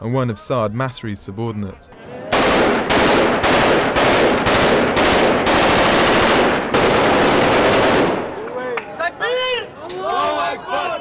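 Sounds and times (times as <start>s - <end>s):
automatic rifle bursts: 2.3s - 8.4s.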